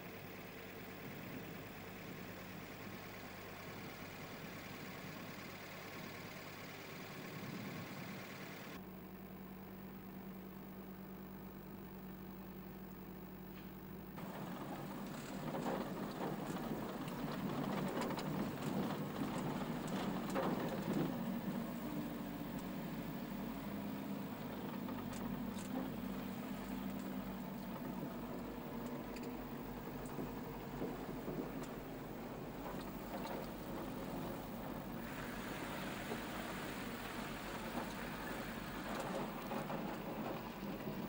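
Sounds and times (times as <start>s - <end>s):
car engine running: 0.0s - 8.8s, 14.1s - 41.0s
tyres on gravel: 14.2s - 41.0s.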